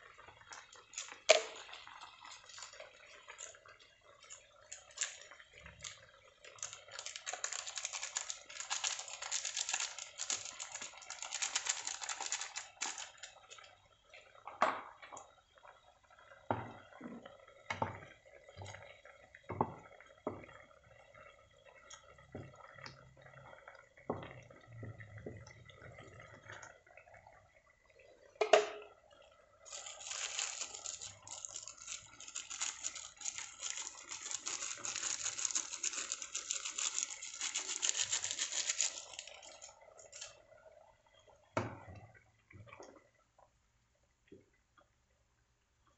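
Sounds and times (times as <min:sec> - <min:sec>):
bubbles popping in sauce: 0:00.0 - 0:07.2, 0:12.6 - 0:35.4
sauce sizzling and crackling: 0:00.0 - 0:13.8, 0:29.5 - 0:40.5.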